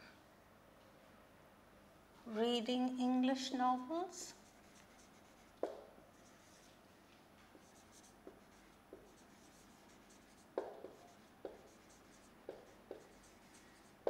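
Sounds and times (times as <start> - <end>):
marker writing on whiteboard: 4.4 - 6.7, 7.5 - 14.0
marker tapping whiteboard: 5.6 - 5.9, 7.6 - 13.6.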